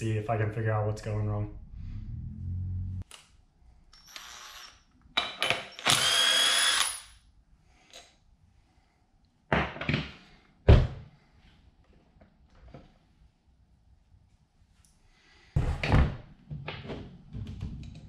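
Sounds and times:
cordless power tool whirring: 0:04.0 - 0:04.8, 0:05.7 - 0:07.0.

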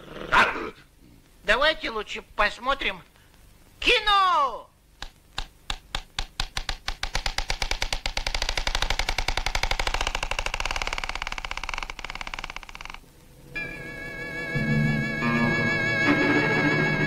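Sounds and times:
film projector clattering: 0:05.4 - 0:13.0
string music: 0:13.5 - 0:17.0.

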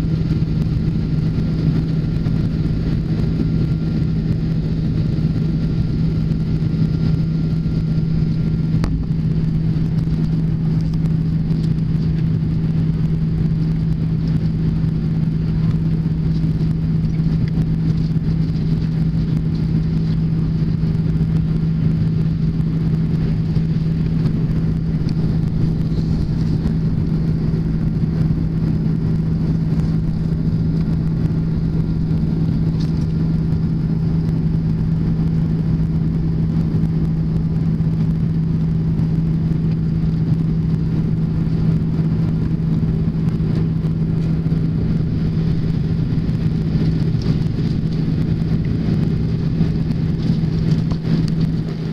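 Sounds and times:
airplane cabin engine drone: 0:00.0 - 0:51.9.

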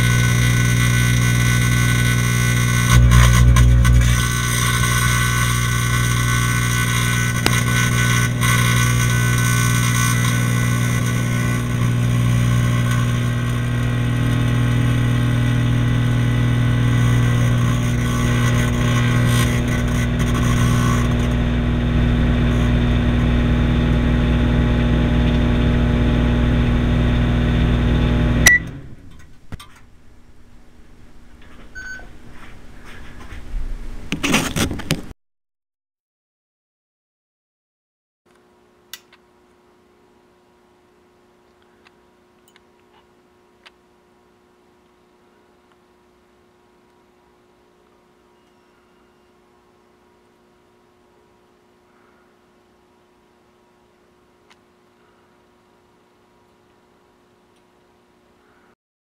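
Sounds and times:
microwave oven humming: 0:00.0 - 0:32.8, 0:38.4 - 0:58.7
short beep: 0:28.4 - 0:28.8, 0:31.8 - 0:32.1.

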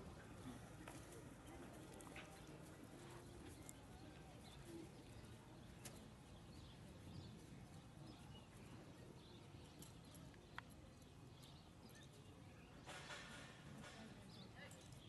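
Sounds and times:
faint outdoor ambience: 0:00.0 - 0:15.0.

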